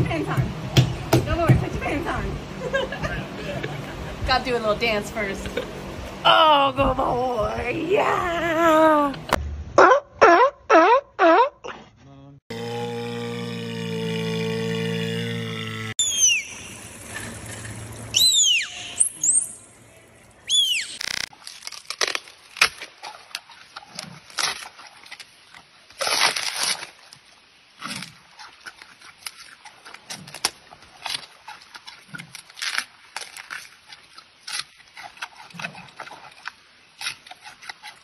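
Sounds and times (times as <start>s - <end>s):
dolphin whistling: 16.0s - 17.0s, 18.1s - 19.8s, 20.4s - 21.2s
panda chewing bamboo: 27.8s - 38.0s.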